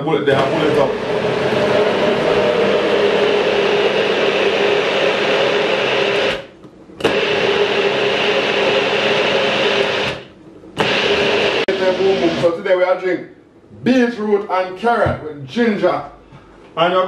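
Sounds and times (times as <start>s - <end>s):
blender motor whir: 0.3s - 12.5s.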